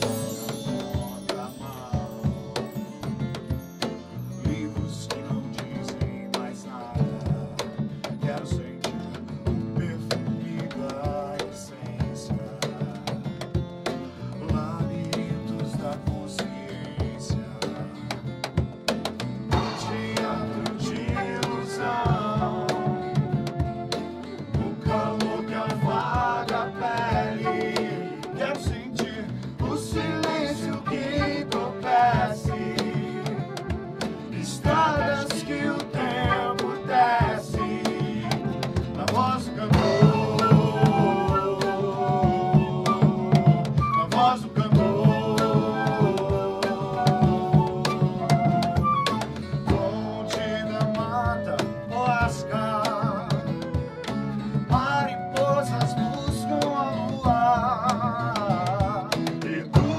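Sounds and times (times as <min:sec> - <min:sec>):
man and woman singing: 0:00.0 - 0:03.3, 0:04.2 - 0:13.4, 0:14.3 - 0:18.1, 0:19.6 - 0:59.9
flute melody: 0:00.0 - 0:07.4, 0:19.5 - 0:59.9
percussion strikes: 0:00.0 - 0:51.0
strummed acoustic guitar: 0:00.0 - 0:59.9.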